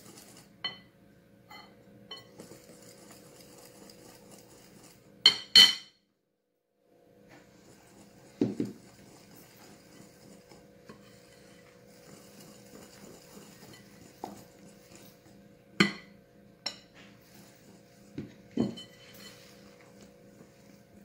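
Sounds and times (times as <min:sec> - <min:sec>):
whisk stirring batter: 0:00.0 - 0:00.6, 0:02.1 - 0:05.2, 0:07.3 - 0:15.8, 0:17.0 - 0:21.0
whisk clinking against glass: 0:01.5 - 0:02.6, 0:08.2 - 0:15.1, 0:18.5 - 0:19.6.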